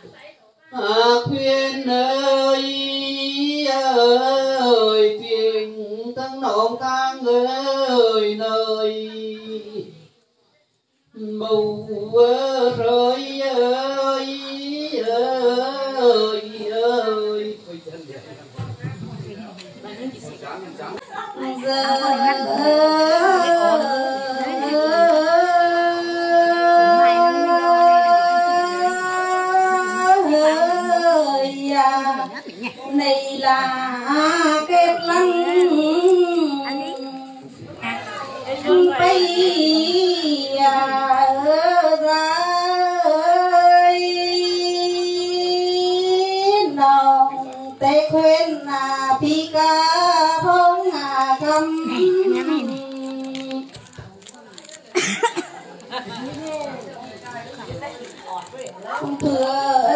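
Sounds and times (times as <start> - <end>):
person singing folk melody: 11.1 - 17.7, 21.1 - 54.9, 55.6 - 59.9.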